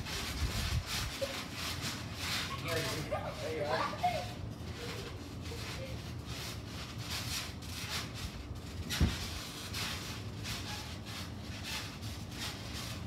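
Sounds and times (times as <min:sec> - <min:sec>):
trampoline springs creaking: 0:00.0 - 0:13.0
body landing on trampoline mat: 0:08.6 - 0:10.1.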